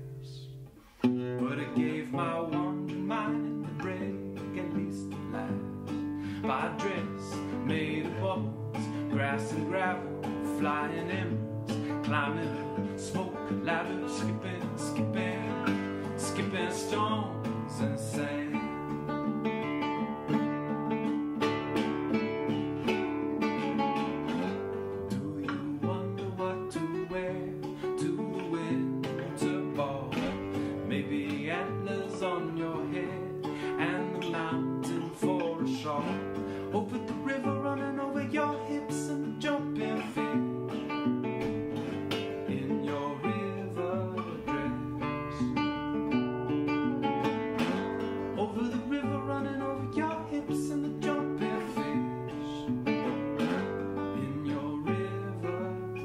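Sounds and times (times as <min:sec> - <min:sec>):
man singing: 0:00.0 - 0:56.0
nylon-string guitar fingerpicked: 0:00.0 - 0:56.0.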